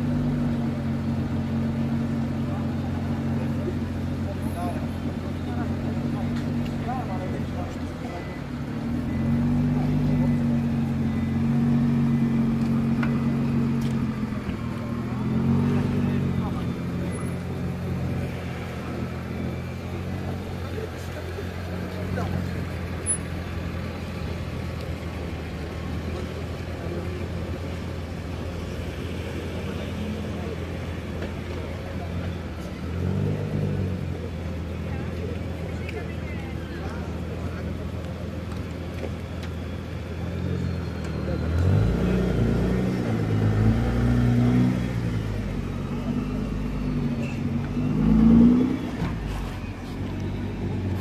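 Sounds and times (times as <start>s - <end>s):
car engine idling: 0.0s - 33.0s, 33.9s - 41.4s
car engine revving: 37.1s - 51.0s.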